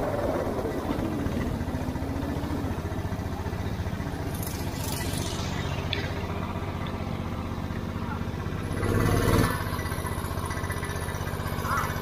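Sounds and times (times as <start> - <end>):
go-kart engines idling: 0.0 - 12.0.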